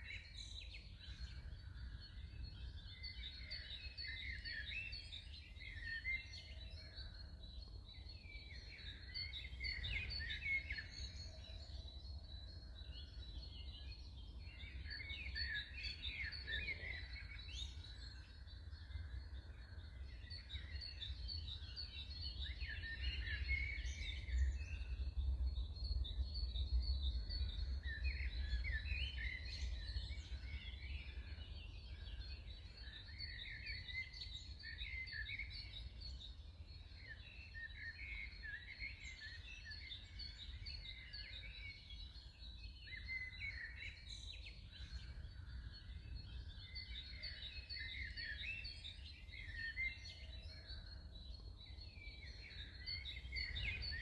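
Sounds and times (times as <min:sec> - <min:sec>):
birds chirping and singing: 0:00.0 - 0:54.0.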